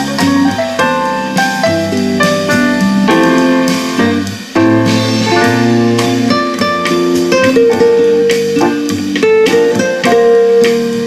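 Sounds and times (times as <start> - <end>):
guitar and keyboard music: 0.0 - 11.0.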